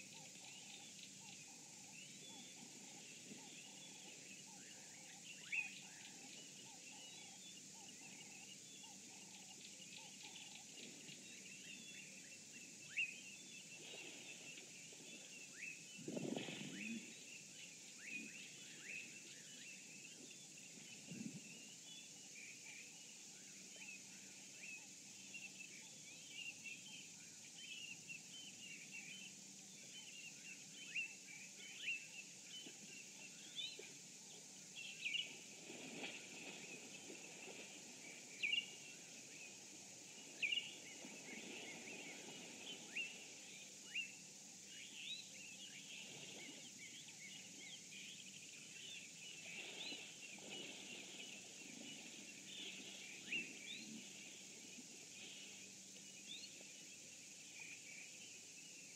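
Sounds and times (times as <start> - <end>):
steady high hiss: 0.0 - 58.9
small birds chirping: 27.6 - 58.9
soft noise washes: 32.4 - 57.6.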